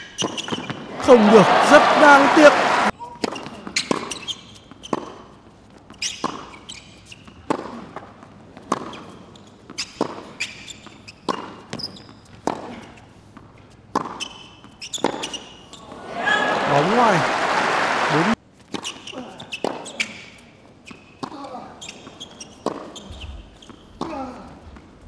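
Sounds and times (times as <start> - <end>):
tennis ball hit by racket: 7.4 - 9.1, 11.2 - 13.0, 13.9 - 15.4, 22.6 - 23.2.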